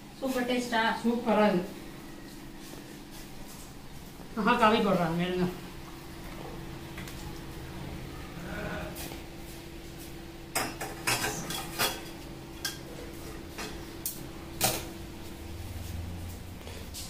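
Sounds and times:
steady low hum: 0.0 - 17.0
dishes and cutlery clinking: 10.5 - 13.8.

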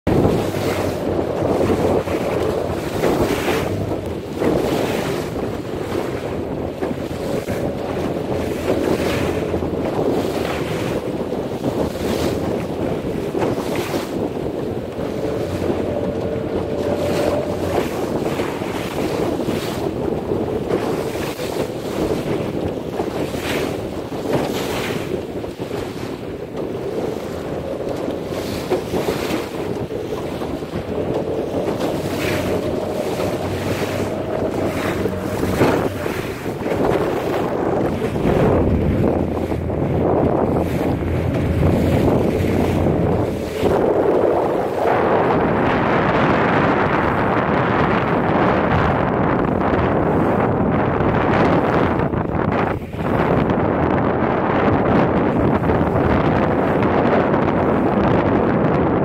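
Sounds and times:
waves washing around boat: 0.0 - 59.0
wind buffeting microphone: 0.0 - 59.0.

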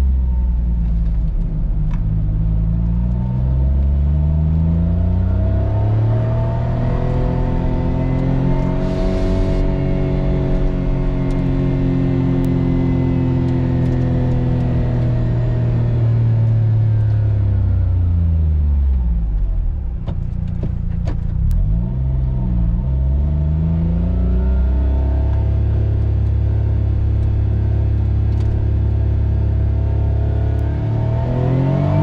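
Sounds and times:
car engine from inside cabin: 0.0 - 32.0.

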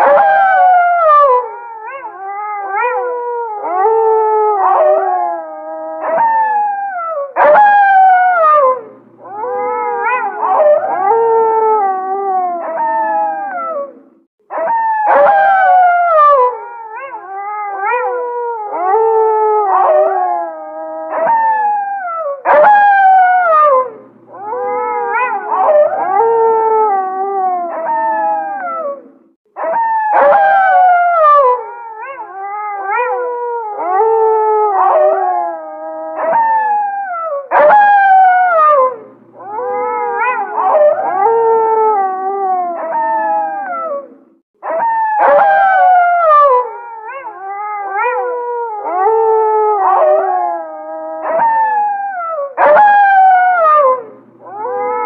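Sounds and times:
wolves howling in chorus: 0.0 - 55.0.

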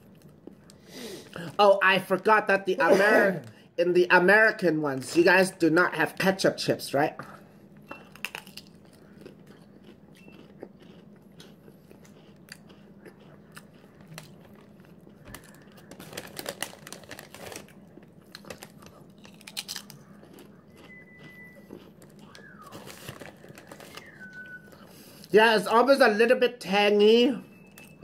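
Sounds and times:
potato chips crunching: 8.0 - 25.4.

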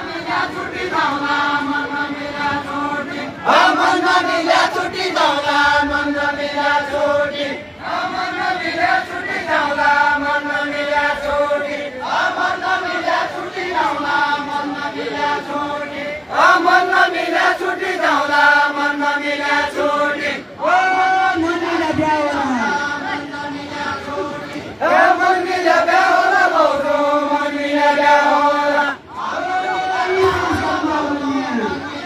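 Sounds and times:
voices chanting a slow melody: 0.0 - 32.0.

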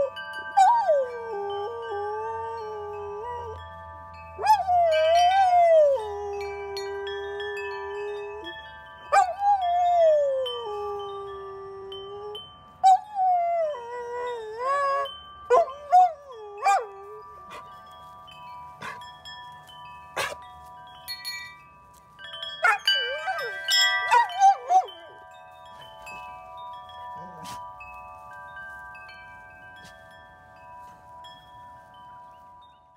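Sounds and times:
metal wind chimes clanking: 0.0 - 32.9
dog howling: 4.5 - 8.6, 22.6 - 25.2.

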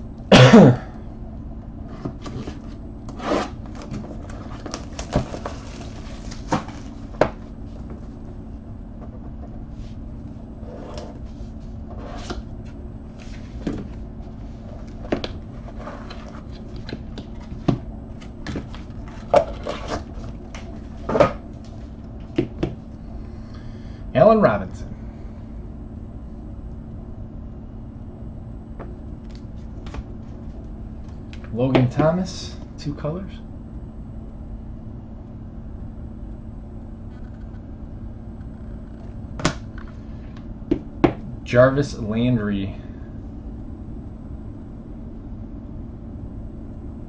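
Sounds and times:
steady low hum: 0.0 - 47.0.

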